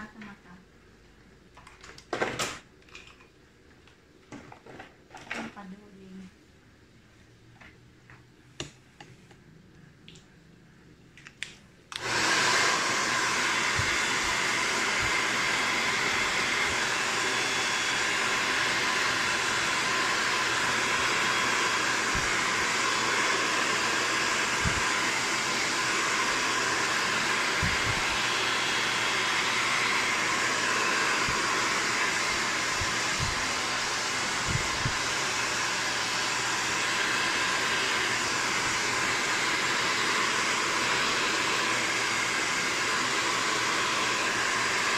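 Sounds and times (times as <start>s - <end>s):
hair dryer blowing: 11.9s - 44.9s
soft low thumps: 32.8s - 33.5s.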